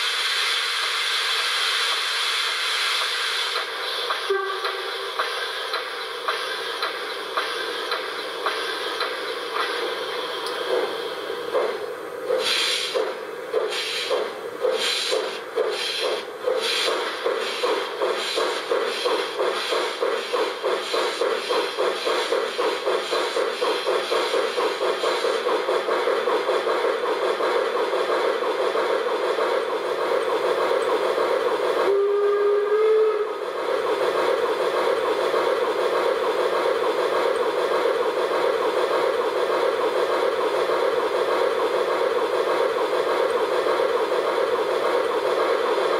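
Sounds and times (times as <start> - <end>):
steam hiss: 0.0 - 45.9
steam locomotive exhaust chuffs: 0.0 - 45.9
steam whistle: 4.3 - 5.1, 31.9 - 33.5.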